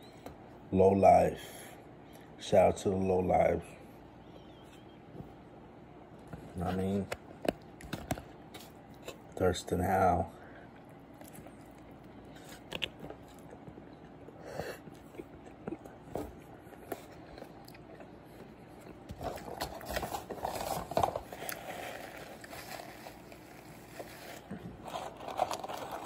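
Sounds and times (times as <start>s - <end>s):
person chewing food: 7.2s - 9.4s, 10.6s - 26.0s.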